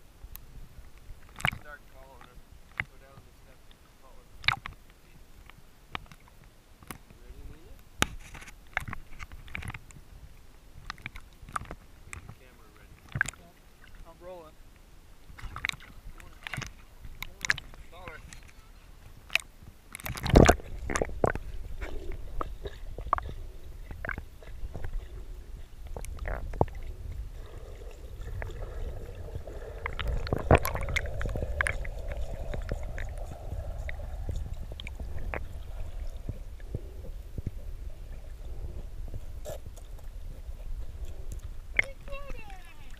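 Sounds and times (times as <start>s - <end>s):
underwater clicks and knocks: 0.9s - 3.3s, 4.4s - 7.2s, 8.0s - 10.0s, 10.8s - 12.4s, 13.0s - 14.0s, 15.3s - 18.6s, 19.2s - 38.4s
muffled underwater rumble: 15.1s - 42.9s.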